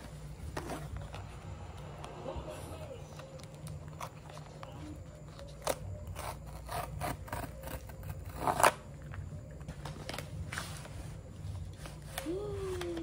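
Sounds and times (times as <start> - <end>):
cardboard tear strip ripping: 5.6 - 8.9.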